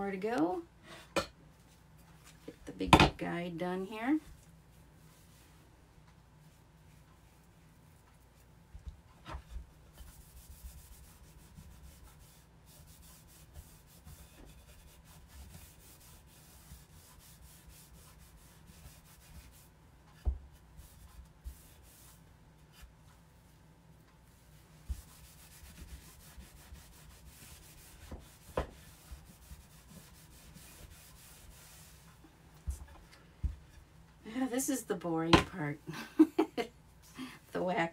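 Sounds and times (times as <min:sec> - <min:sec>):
cloth rubbing wax on wood: 0:09.2 - 0:23.5, 0:24.2 - 0:32.9.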